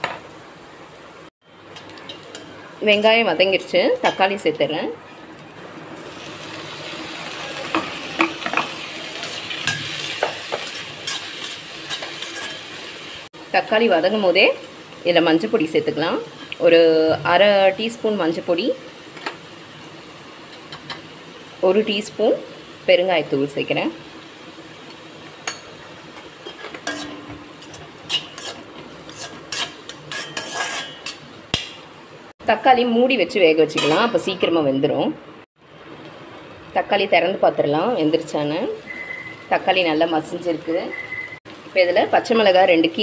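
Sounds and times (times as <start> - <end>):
vegetables sizzling in hot oil: 0.0 - 34.4, 35.7 - 43.0
steel spatula scraping a pan: 7.7 - 12.9, 26.4 - 31.3.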